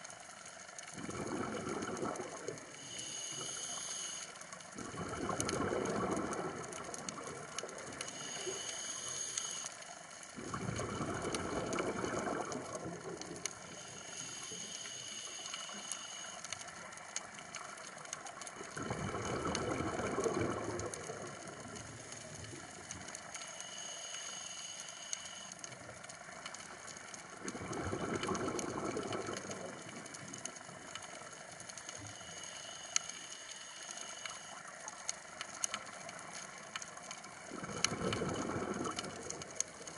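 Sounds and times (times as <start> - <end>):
fine crackle of clicks: 0.0 - 39.9
exhaled bubbles rushing: 0.9 - 2.7, 4.8 - 8.0, 10.4 - 13.5, 18.6 - 21.8, 27.4 - 30.2, 37.4 - 39.9
regulator whistling inhale: 2.8 - 4.4, 8.0 - 9.8, 13.6 - 16.6, 23.4 - 25.6.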